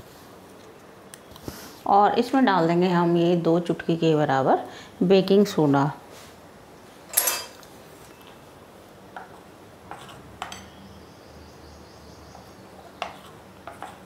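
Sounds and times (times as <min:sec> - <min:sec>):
spoon clinking on glass: 0:07.1 - 0:07.6, 0:10.4 - 0:10.8
spoon stirring batter: 0:12.3 - 0:14.0.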